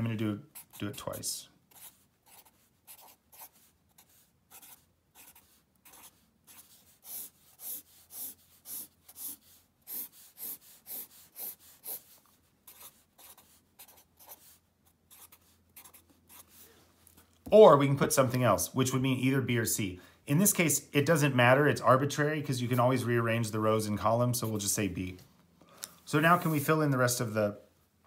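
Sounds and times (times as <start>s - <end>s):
pen scratching on paper: 0.4s - 16.6s.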